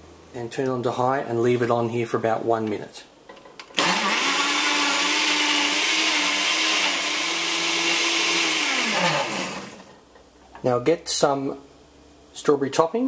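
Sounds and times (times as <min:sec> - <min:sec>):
blender whirring: 0:03.8 - 0:10.0.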